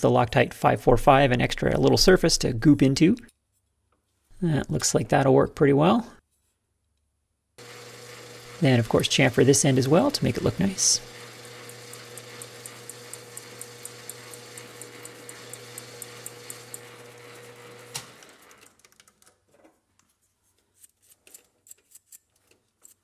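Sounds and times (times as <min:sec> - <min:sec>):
lathe winding down: 0:07.6 - 0:18.7
metal lathe running: 0:07.6 - 0:18.7.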